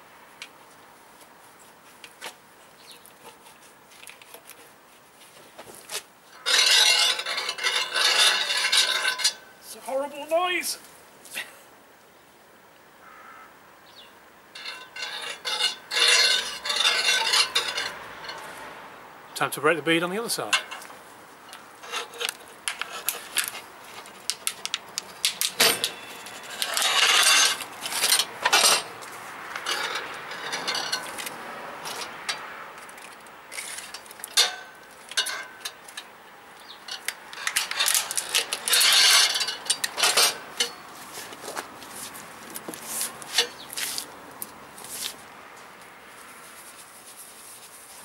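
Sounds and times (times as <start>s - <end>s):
tyre bead scraping: 3.0s - 10.4s, 14.6s - 18.6s, 21.6s - 36.0s, 36.9s - 44.1s
metal clinks and knocks: 6.3s - 9.4s, 14.6s - 18.5s, 21.5s - 31.3s, 31.9s - 36.1s, 36.8s - 40.9s, 43.3s - 43.7s.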